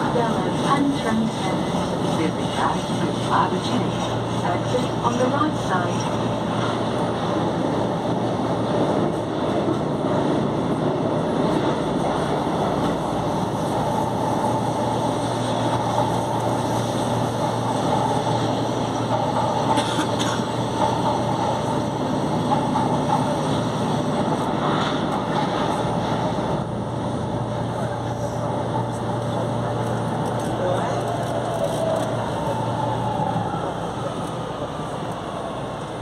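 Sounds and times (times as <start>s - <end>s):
train running: 0.0s - 36.0s
train clattering: 15.2s - 26.4s.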